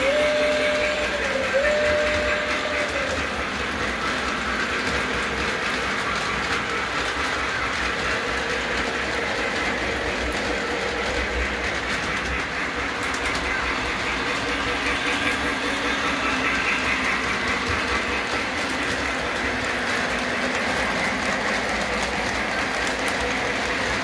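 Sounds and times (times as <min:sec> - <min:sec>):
model train wheels clicking: 0:00.0 - 0:24.0.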